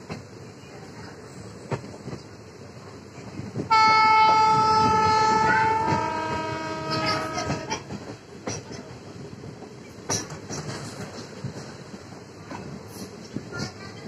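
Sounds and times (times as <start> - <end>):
train wheels clattering over rails: 0.0 - 14.0
train horn blast: 3.7 - 7.9.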